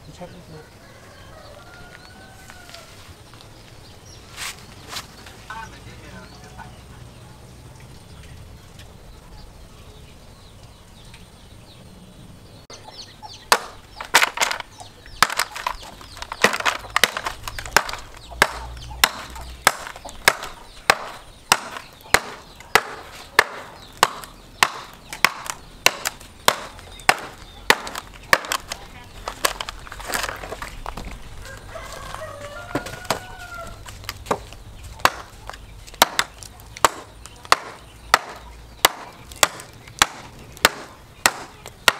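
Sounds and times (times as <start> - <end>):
rooster crowing: 0.6 - 3.1, 31.4 - 33.9
axe chopping branch: 13.5 - 30.7, 34.1 - 41.9.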